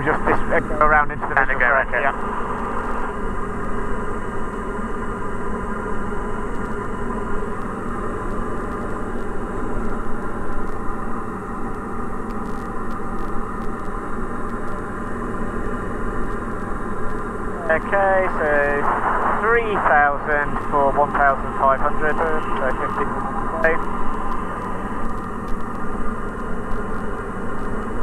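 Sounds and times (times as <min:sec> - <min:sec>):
aircraft engine and propeller drone: 0:00.0 - 0:28.0
airflow rushing: 0:17.8 - 0:25.1.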